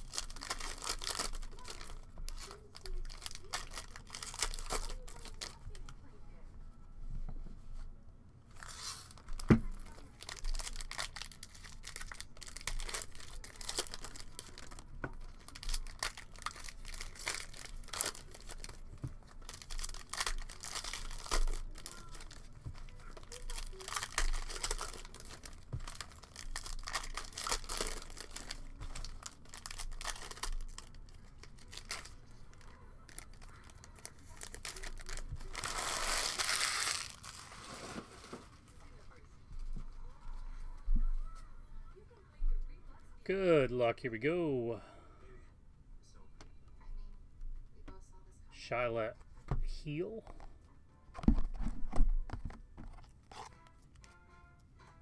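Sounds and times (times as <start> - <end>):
foil wrappers crinkling and tearing: 0.0 - 5.9, 8.6 - 38.8, 52.4 - 54.2.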